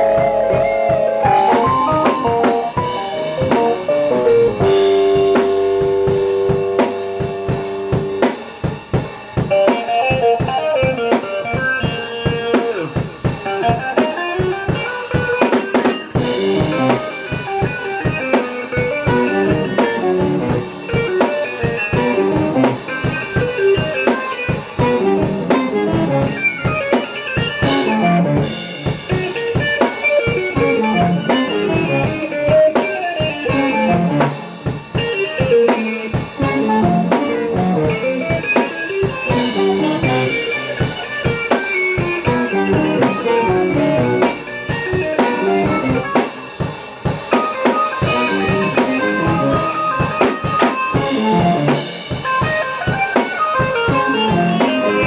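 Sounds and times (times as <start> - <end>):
drum kit beat: 0.0 - 55.0
electric guitar: 0.0 - 55.0
keyboard: 0.0 - 55.0.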